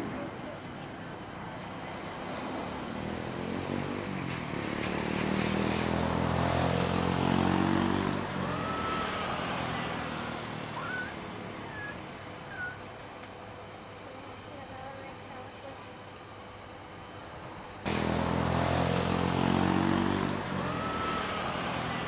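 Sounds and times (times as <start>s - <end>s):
jet engines passing close: 0.0s - 13.1s, 17.7s - 22.0s.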